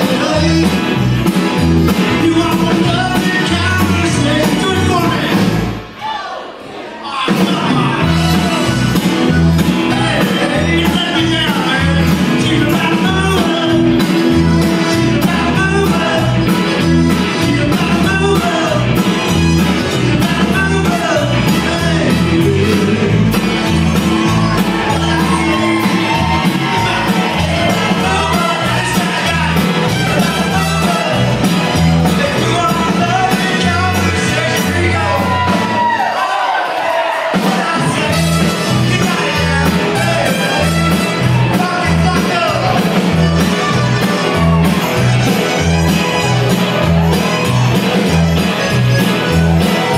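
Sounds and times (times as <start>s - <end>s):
live rock band playing: 0.0s - 6.0s, 7.1s - 49.9s
lead voice singing: 0.0s - 49.9s
button accordion: 8.1s - 35.3s, 37.4s - 49.9s
trumpet: 23.8s - 49.9s.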